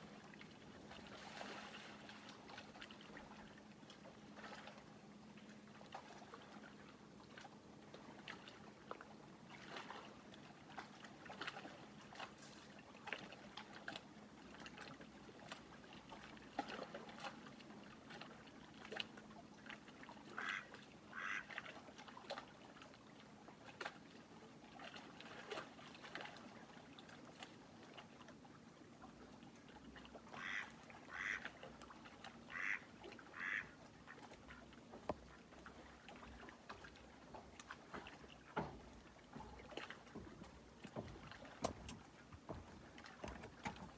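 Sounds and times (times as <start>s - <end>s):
ducks quacking: 20.4s - 21.5s, 30.3s - 31.5s, 32.5s - 34.6s.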